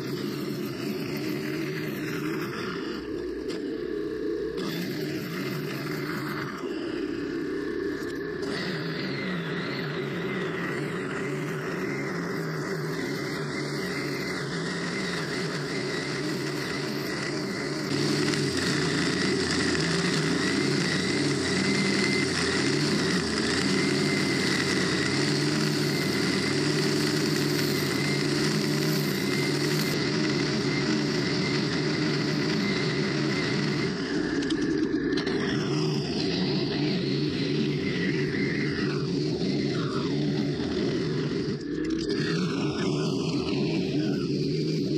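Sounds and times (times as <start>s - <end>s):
string trimmer cutting grass: 4.6s - 7.0s, 8.0s - 44.9s.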